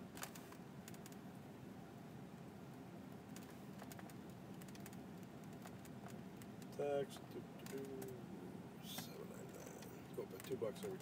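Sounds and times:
low steady hum: 0.0s - 11.0s
faint computer clicks: 7.6s - 8.2s.

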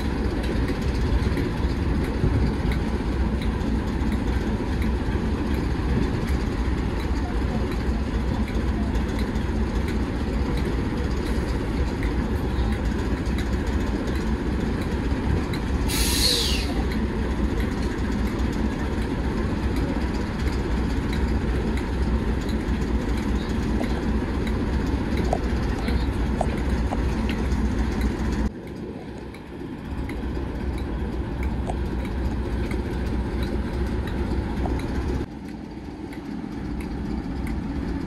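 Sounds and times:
diesel engine idling: 0.0s - 38.0s
sharp hiss: 15.9s - 16.7s.

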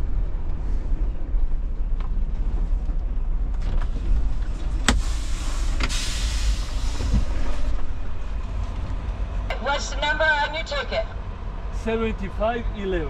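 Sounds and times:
diesel truck engine idling: 0.0s - 13.0s
air brakes hissing: 4.9s - 7.8s.

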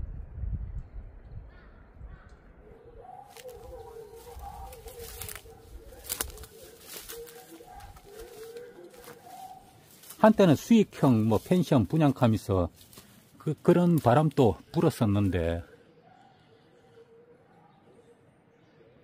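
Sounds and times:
birds low wavering calls: 1.5s - 19.0s
footsteps crackling dry brush: 3.2s - 15.6s.

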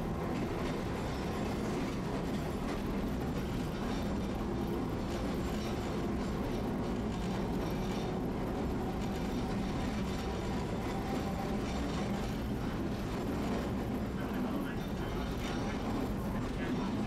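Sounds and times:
streetcar wheels rumbling on rails: 0.0s - 17.0s.

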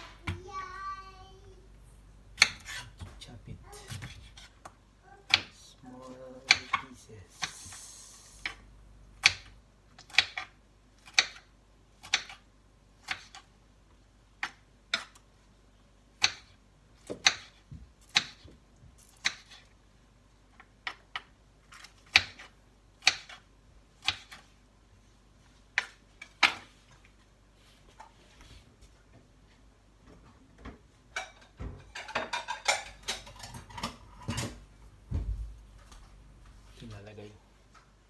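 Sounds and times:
knife chopping on cutting board: 2.4s - 3.2s, 3.8s - 4.7s, 16.2s - 18.6s, 19.2s - 19.6s, 21.8s - 23.4s, 24.0s - 24.4s.

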